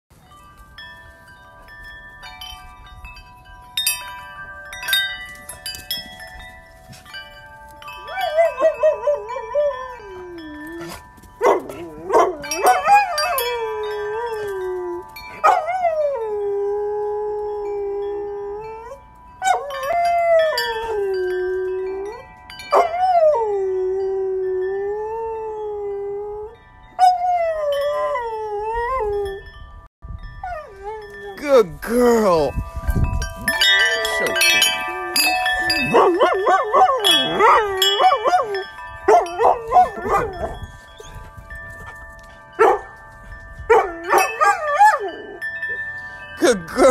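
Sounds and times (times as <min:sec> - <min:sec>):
metal wind chime ringing: 0:00.1 - 0:46.9
dog howling: 0:08.0 - 0:29.4, 0:33.6 - 0:40.6.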